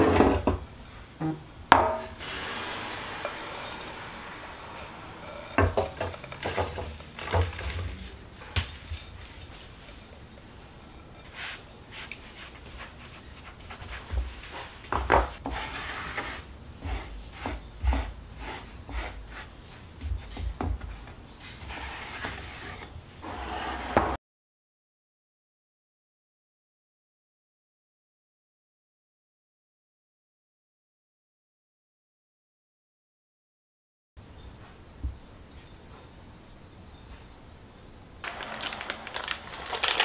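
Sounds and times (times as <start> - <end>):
crumbs rubbing and scraping in pan: 2.2 - 24.2, 38.2 - 40.0.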